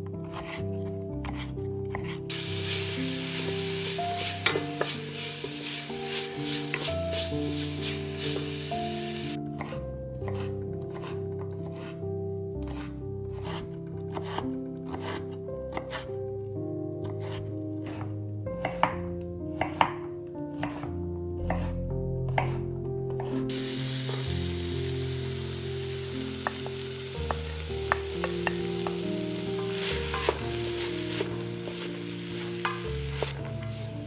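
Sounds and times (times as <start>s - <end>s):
vegetables sizzling in a pot: 2.3s - 9.4s, 23.5s - 34.0s
knife chopping on wooden board: 9.6s - 11.9s, 12.7s - 16.0s, 17.0s - 22.6s, 29.6s - 32.0s.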